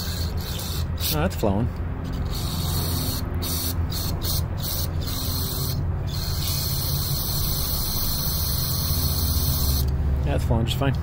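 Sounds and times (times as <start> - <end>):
steady low hum: 0.0 - 11.0
aerosol spray hissing: 2.4 - 9.9.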